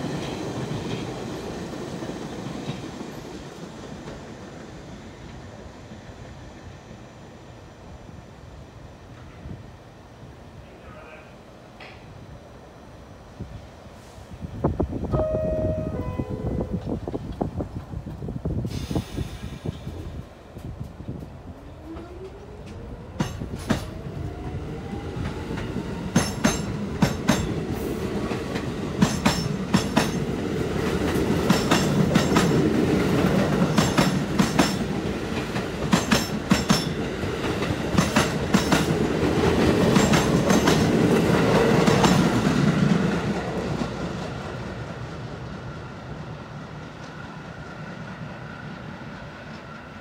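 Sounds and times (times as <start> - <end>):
wheels clacking over rail joints: 25.2 - 44.3.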